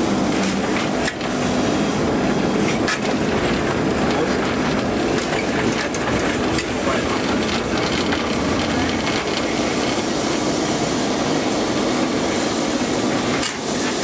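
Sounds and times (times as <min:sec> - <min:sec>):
tram rumbling: 0:00.0 - 0:14.0
wheels clicking on rails: 0:02.6 - 0:10.1.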